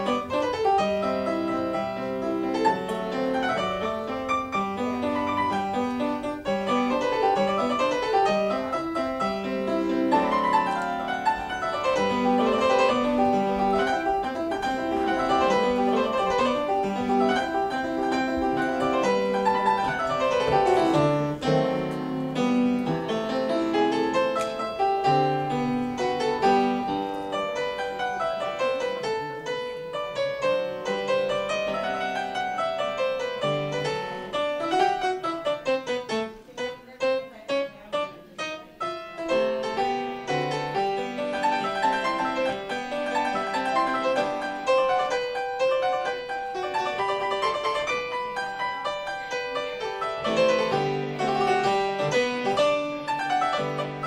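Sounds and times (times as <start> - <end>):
solo piano: 0.0 - 54.0.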